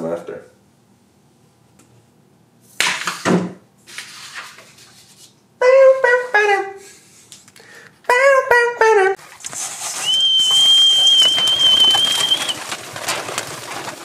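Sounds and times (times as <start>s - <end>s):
paper rustle: 9.2s - 14.0s.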